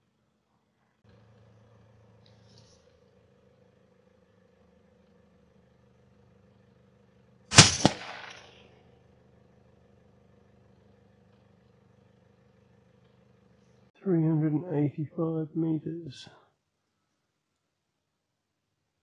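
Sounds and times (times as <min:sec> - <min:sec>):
faint steady hum: 0:00.0 - 0:19.0
bullet striking: 0:07.5 - 0:08.6
suppressed rifle shot: 0:07.5 - 0:08.6.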